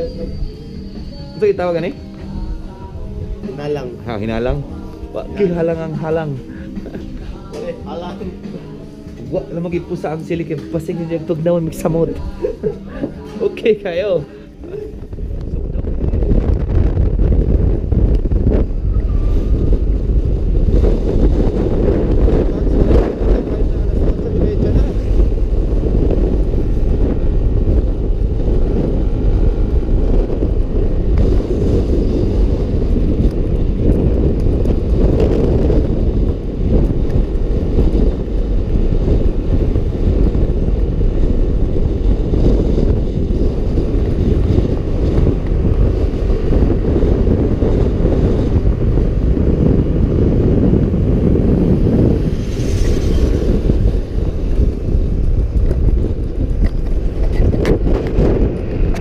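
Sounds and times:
scooter engine and road rumble: 0.0s - 59.0s
wind buffeting microphone: 0.0s - 59.0s
passing motorcycle rush: 15.1s - 59.0s.

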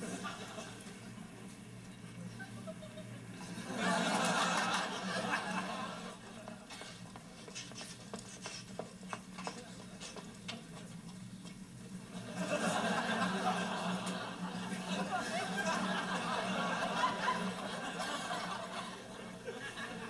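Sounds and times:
audience laughter: 0.0s - 1.2s, 2.2s - 7.0s, 12.0s - 20.0s.

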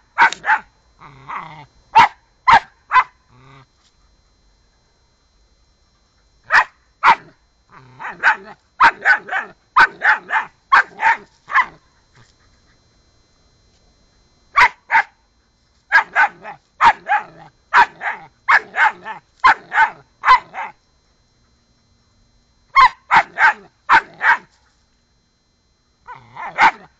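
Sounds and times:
puppy barking: 0.2s - 0.7s, 2.0s - 3.2s, 6.5s - 7.3s, 8.0s - 11.8s, 14.6s - 15.2s, 15.9s - 20.8s, 22.8s - 24.5s, 26.1s - 26.9s.

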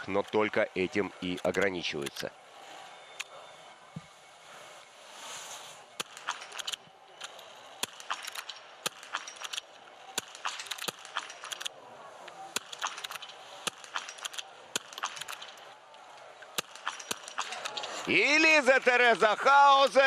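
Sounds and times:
rifle shots cracking: 6.0s - 6.8s, 7.8s - 11.7s, 12.5s - 15.7s, 16.6s - 17.9s.

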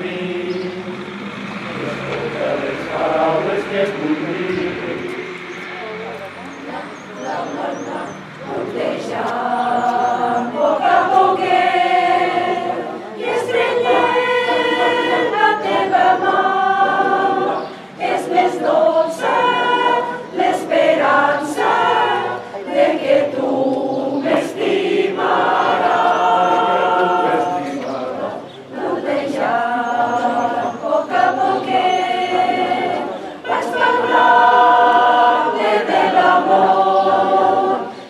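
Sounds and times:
choir singing: 0.0s - 38.0s
singers breathing: 17.6s - 18.0s, 33.1s - 33.5s.

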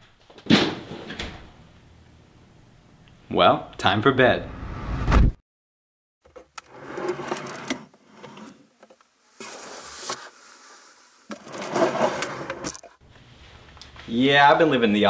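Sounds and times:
brief bright hiss: 9.4s - 11.3s.

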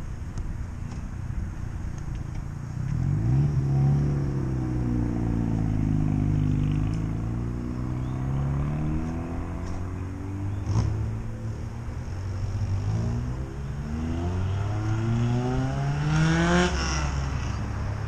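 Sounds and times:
car engine accelerating past: 2.9s - 11.5s, 12.4s - 17.6s.

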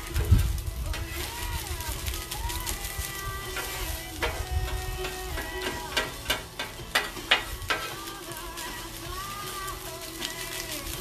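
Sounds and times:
meat sizzling on a griddle: 0.0s - 11.0s
spatula clacking on steel: 3.5s - 9.6s.

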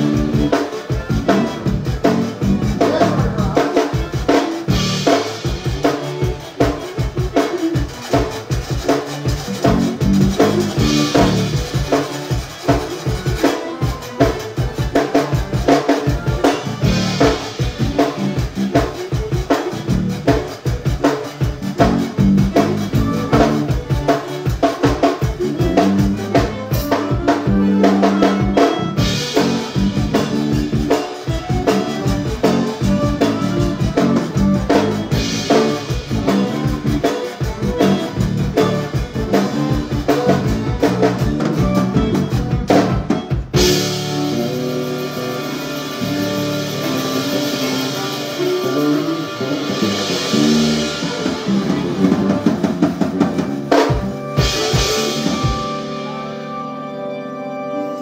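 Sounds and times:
drum kit beat: 0.0s - 56.8s
accordion: 0.0s - 58.0s
bass: 0.0s - 58.0s
live band playing: 0.0s - 58.0s.

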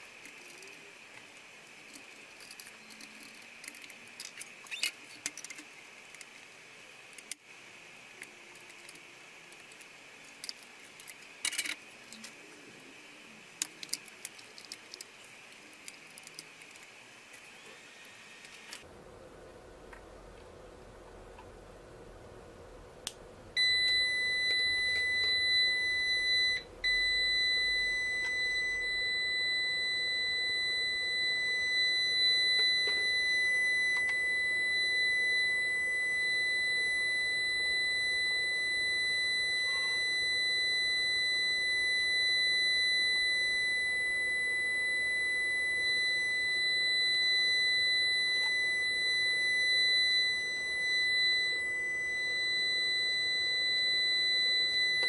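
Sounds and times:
alarm buzzer high-pitched tone: 23.6s - 55.0s.

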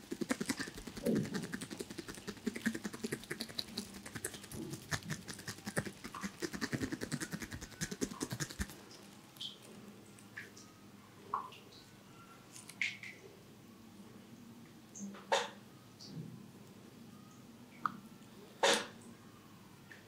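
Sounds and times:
fingers rubbing skin: 0.0s - 9.2s.

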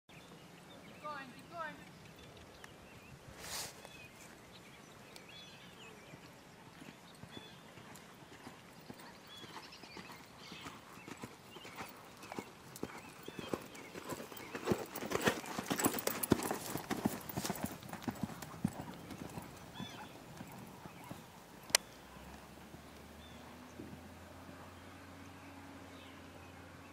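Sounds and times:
horse hoofbeats on sand: 6.7s - 24.6s.

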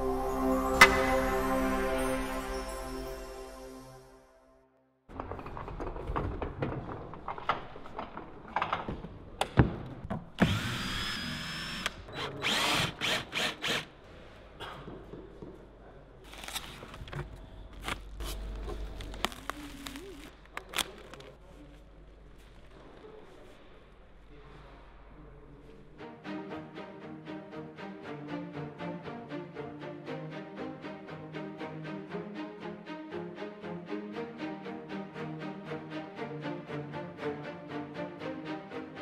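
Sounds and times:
wood knocking and clattering: 5.1s - 10.3s
cordless drill driving screws: 10.4s - 13.9s
bubble wrap being cut: 17.8s - 21.5s.

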